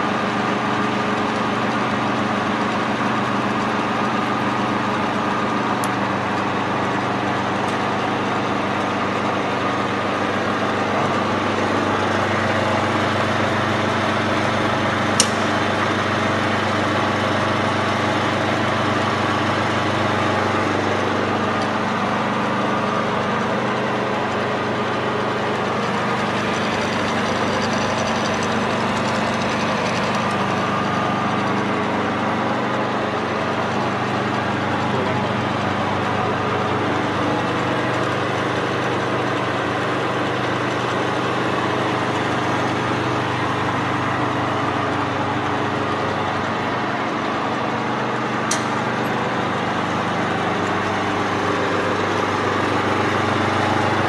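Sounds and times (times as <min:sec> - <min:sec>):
milling machine humming: 0:00.0 - 0:54.0
sharp click: 0:15.2 - 0:15.5, 0:48.5 - 0:48.8.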